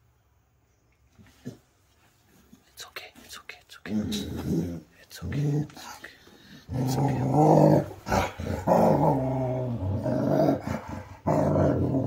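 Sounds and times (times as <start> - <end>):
husky animal growling: 3.9 - 12.0.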